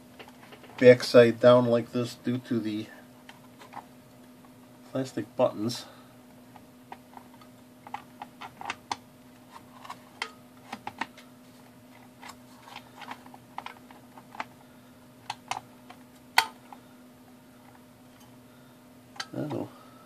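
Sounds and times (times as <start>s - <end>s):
faint steady hum: 0.0s - 20.0s
plastic parts clicking and tapping: 6.9s - 11.2s, 12.2s - 14.5s.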